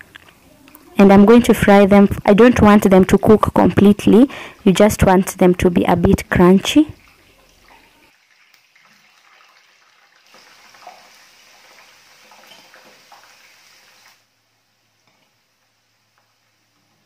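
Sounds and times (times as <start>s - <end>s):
potatoes frying in oil: 6.2s - 14.3s.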